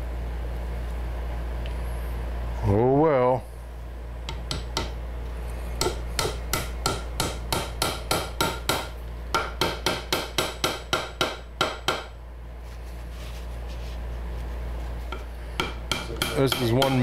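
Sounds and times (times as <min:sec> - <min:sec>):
small hammer tapping wood: 0:04.3 - 0:05.0, 0:05.8 - 0:12.1, 0:15.6 - 0:17.0.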